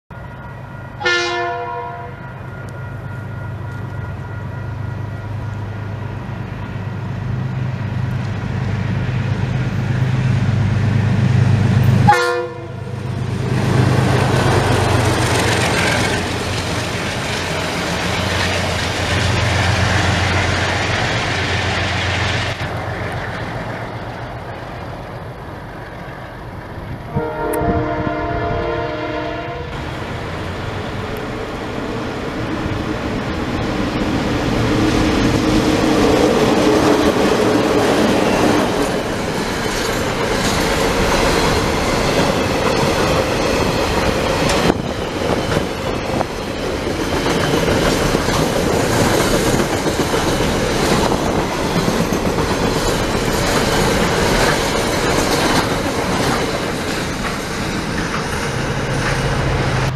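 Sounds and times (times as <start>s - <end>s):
diesel locomotive throbbing: 0.1s - 59.9s
train wheels rushing past: 0.2s - 59.9s
train horn blasts: 0.5s - 5.4s, 12.0s - 13.0s, 27.1s - 29.8s.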